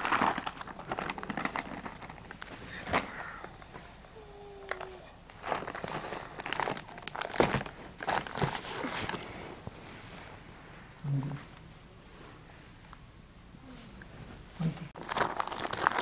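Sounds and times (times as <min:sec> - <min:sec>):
plastic packet crinkling: 0:00.0 - 0:03.7, 0:04.6 - 0:09.3, 0:15.0 - 0:16.0.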